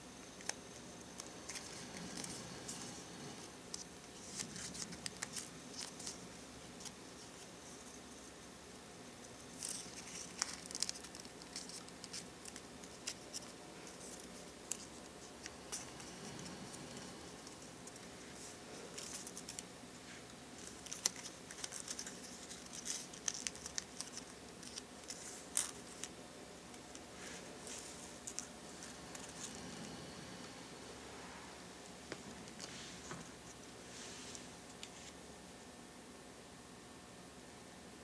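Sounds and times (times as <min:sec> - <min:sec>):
paper crinkling and rustling: 0:00.3 - 0:08.3, 0:09.2 - 0:29.7.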